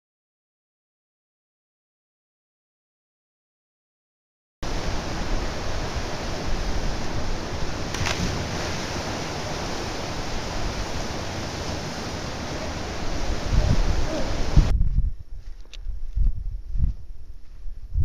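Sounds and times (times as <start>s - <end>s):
waterfall rushing into pool: 4.6s - 14.7s
splash of person jumping in: 7.8s - 9.2s.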